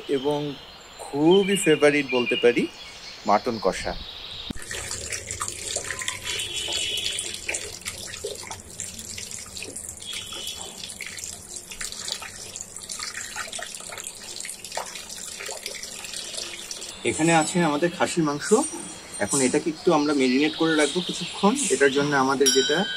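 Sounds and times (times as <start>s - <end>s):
hand splashing water: 4.5s - 17.0s
tap water running into bowl: 4.5s - 17.7s.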